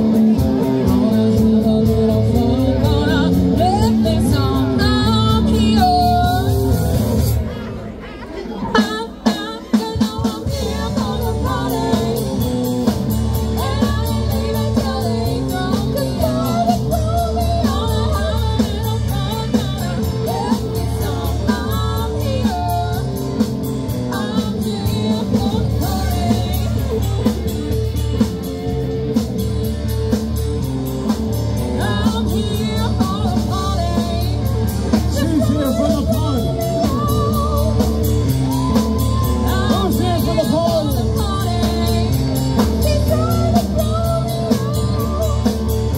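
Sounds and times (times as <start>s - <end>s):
live rock band playing: 0.0s - 45.9s
woman singing lead: 0.0s - 45.9s.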